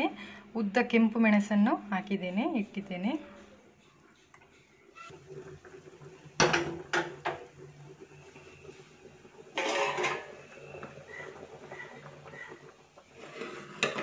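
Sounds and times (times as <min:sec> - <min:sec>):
pressure cooker lid clatter and scrape: 0:09.5 - 0:10.3, 0:13.2 - 0:14.0
metal cookware clanking: 0:09.5 - 0:10.4, 0:13.2 - 0:14.0.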